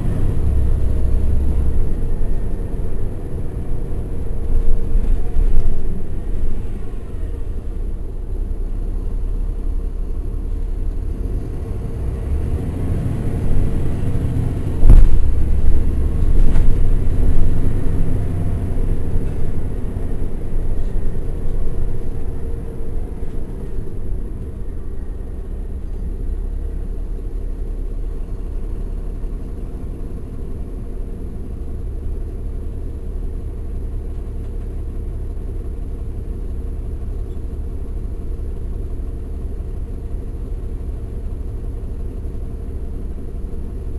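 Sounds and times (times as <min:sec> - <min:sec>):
bus diesel engine rumble: 0:00.0 - 0:43.9.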